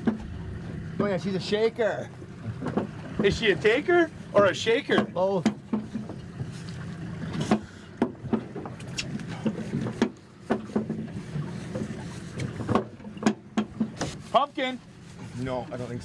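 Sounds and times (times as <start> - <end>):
boat engine idling: 0.0 - 16.0
sharp clicks and knocks: 2.5 - 3.4, 4.9 - 6.2, 7.4 - 11.1, 12.4 - 14.2.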